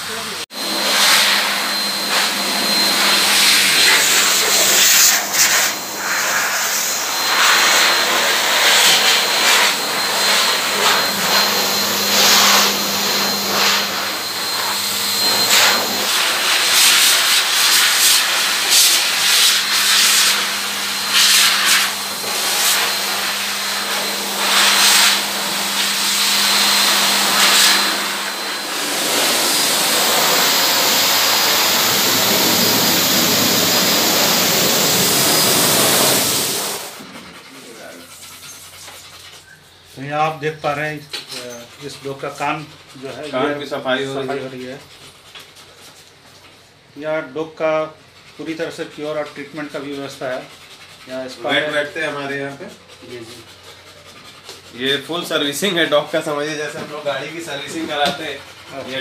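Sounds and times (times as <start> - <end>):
blower dryer rushing air: 0.0 - 38.8, 48.4 - 59.0.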